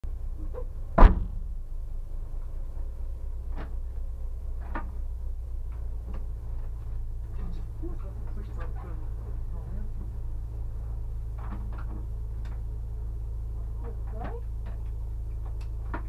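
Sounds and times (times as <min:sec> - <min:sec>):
car engine idling: 0:00.0 - 0:16.0
loud knock: 0:01.0 - 0:01.5.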